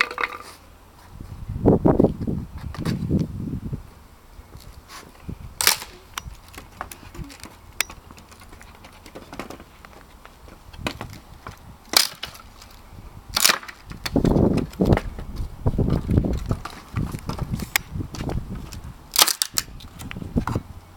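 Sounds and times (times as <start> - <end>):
wood cracking and splitting: 10.8 - 15.1, 19.1 - 19.7.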